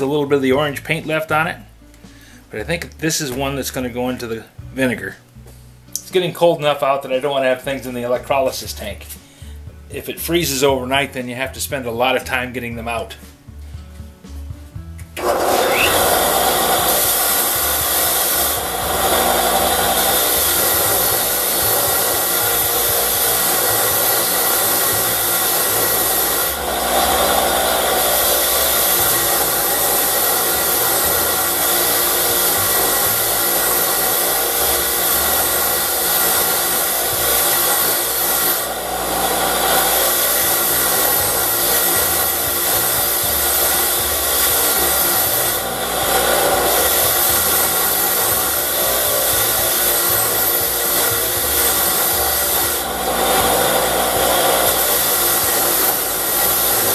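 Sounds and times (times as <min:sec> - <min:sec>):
bench grinder motor running: 0:15.2 - 0:56.9
wire wheel brushing metal: 0:15.2 - 0:56.9.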